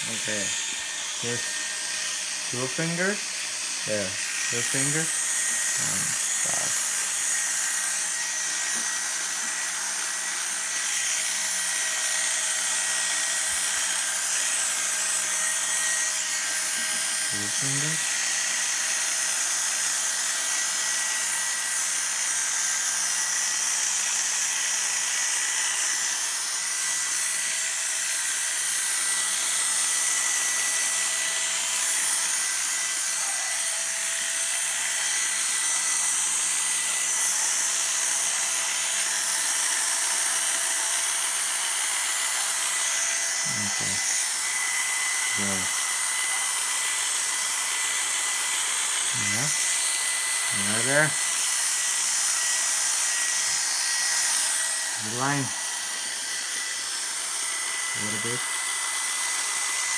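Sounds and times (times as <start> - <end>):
electric clippers buzzing: 0.0 - 59.9.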